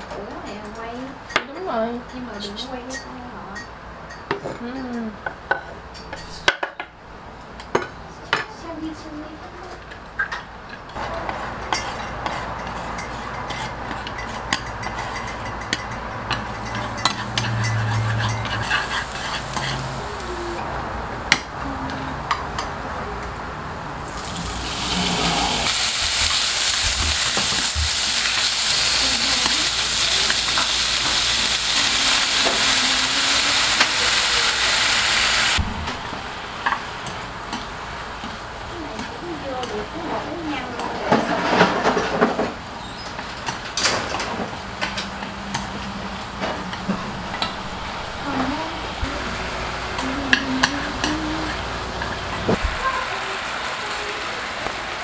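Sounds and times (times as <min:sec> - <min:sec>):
spatula scraping a pan: 0:11.0 - 0:20.2, 0:24.3 - 0:33.5
food sizzling in a pan: 0:11.0 - 0:20.6, 0:24.0 - 0:39.9, 0:49.1 - 0:55.0.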